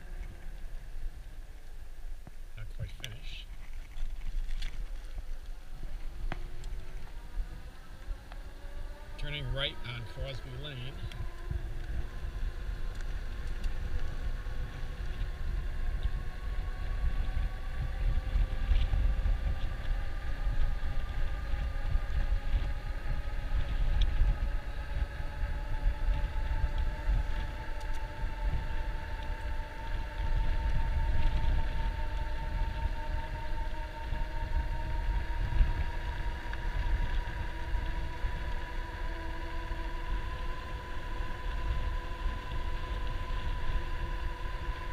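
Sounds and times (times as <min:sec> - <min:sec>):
wind rumble on microphone: 0:00.0 - 0:44.9
electric bike motor whining: 0:03.9 - 0:44.9.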